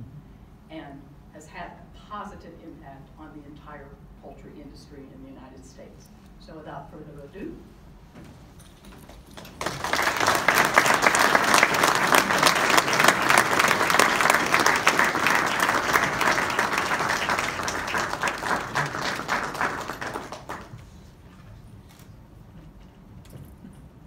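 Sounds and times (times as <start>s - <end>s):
audience applause: 9.4s - 21.0s.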